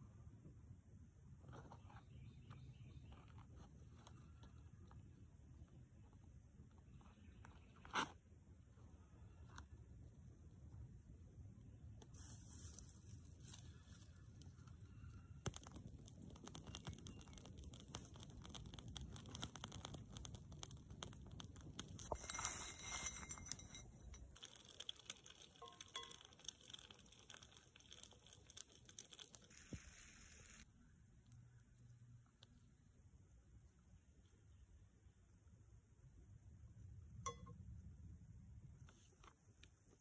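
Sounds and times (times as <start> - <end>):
wood fire crackling: 13.4 - 30.7.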